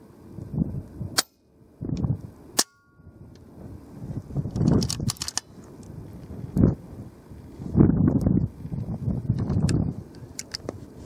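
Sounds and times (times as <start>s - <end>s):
wind rumbling on microphone: 0.0s - 11.0s
sharp cracks: 4.5s - 5.5s
cluster of clicks: 4.5s - 5.9s, 9.6s - 10.8s.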